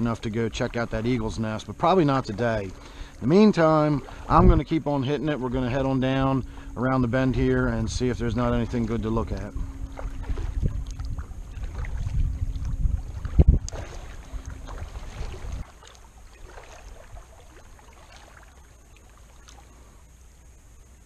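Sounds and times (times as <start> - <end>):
wind rumbling on microphone: 0.0 - 18.6
paddle strokes in water: 0.0 - 20.1
water against hull: 0.0 - 21.0
faint ticks: 10.6 - 11.3, 12.5 - 14.8, 17.5 - 21.0.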